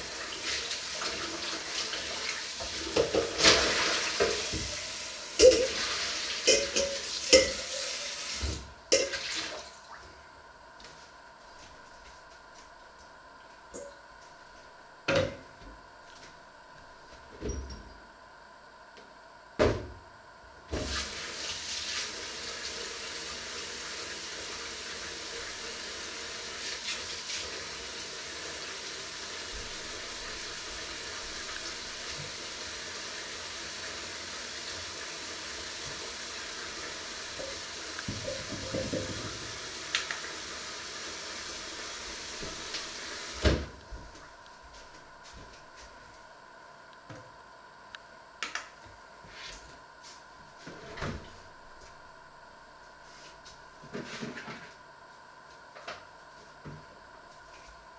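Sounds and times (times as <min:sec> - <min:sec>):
water running into metal sink: 0:00.0 - 0:09.7.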